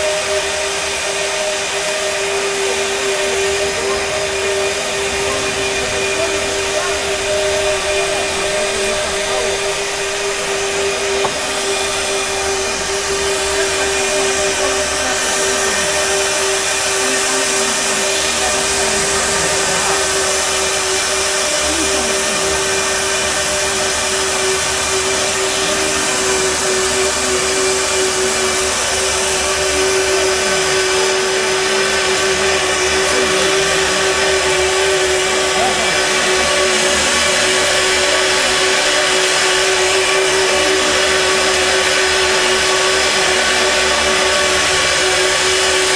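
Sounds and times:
loud hiss: 0.0 - 45.9
pipe bevelling machine humming: 0.0 - 45.9.

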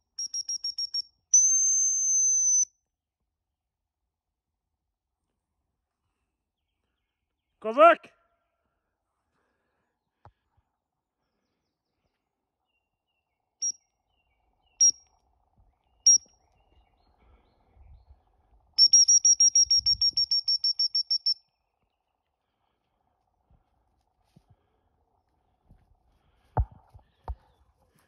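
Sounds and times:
dog training whistle blasts: 0.2 - 2.7, 18.8 - 21.4.

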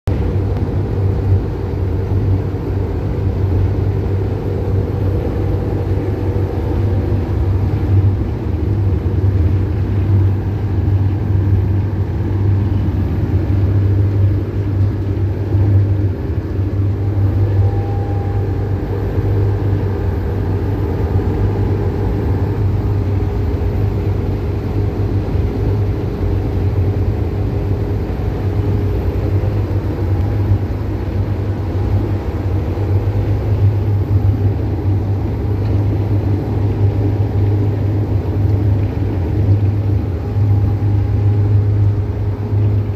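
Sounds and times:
bus engine and road drone: 0.0 - 42.9.

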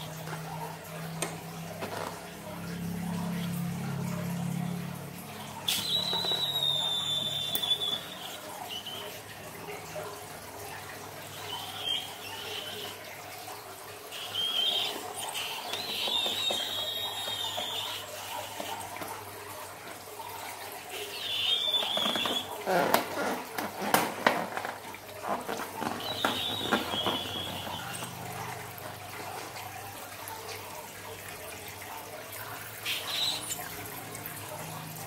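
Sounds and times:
liquid pouring and splashing: 0.0 - 35.0
wet balloon squeaks: 5.7 - 9.1, 21.3 - 28.2.

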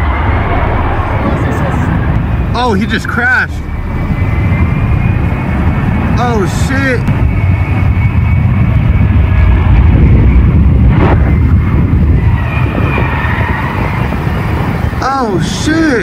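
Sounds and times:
jet engine running rough: 0.0 - 16.0.

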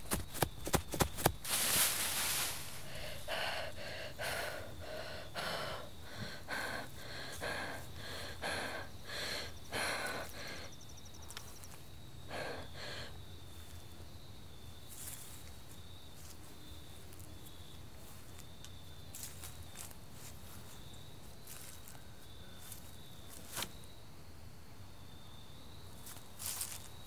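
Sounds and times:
woman panting: 2.5 - 10.8, 12.2 - 13.2.

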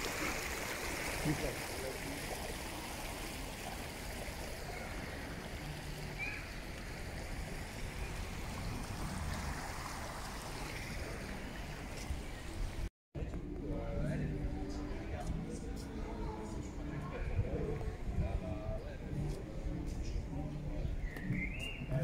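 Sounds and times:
stream flowing over stones: 0.0 - 12.9.

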